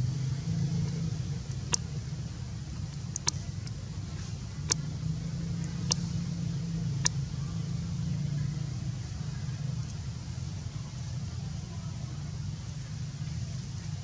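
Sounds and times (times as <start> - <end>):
low motor hum: 0.0 - 14.0
sharp clicks: 2.9 - 3.8, 5.6 - 6.1.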